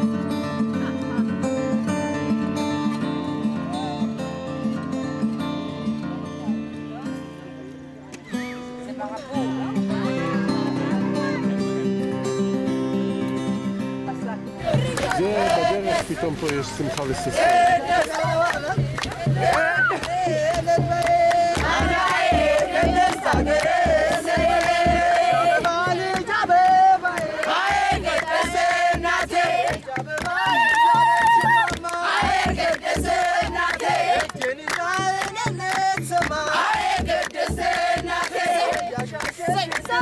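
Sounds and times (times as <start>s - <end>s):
people clapping: 14.6s - 40.0s
women singing together: 14.6s - 40.0s
large drum beat: 14.7s - 26.2s, 30.4s - 34.2s.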